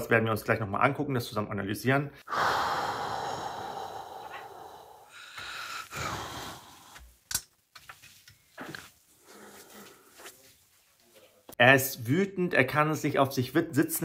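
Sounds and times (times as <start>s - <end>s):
heavy ragged breaths: 2.2s - 7.2s.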